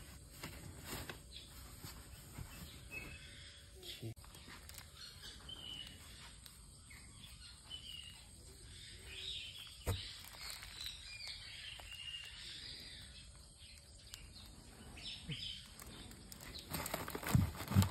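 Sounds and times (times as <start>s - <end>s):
faint bird chirps: 1.4s - 16.8s
plastic wrapping rustling: 4.2s - 6.6s, 9.6s - 12.8s, 15.5s - 17.9s.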